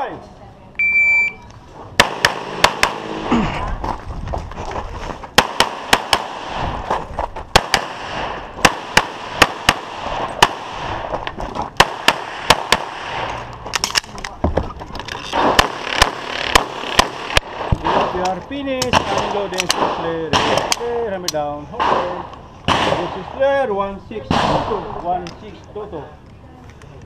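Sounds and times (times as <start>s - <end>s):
pistol shots: 2.0s - 3.1s, 5.4s - 6.6s, 7.5s - 11.1s, 11.8s - 13.3s, 18.8s - 20.8s, 21.8s - 23.4s, 24.3s - 24.8s.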